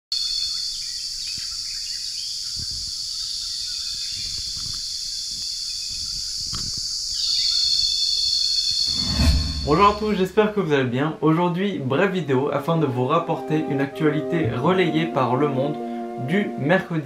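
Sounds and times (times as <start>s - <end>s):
high insect drone: 0.2s - 8.8s.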